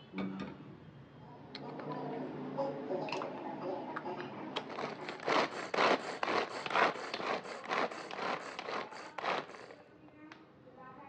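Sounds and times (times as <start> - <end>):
vegetable chopper whirring: 4.6 - 9.8.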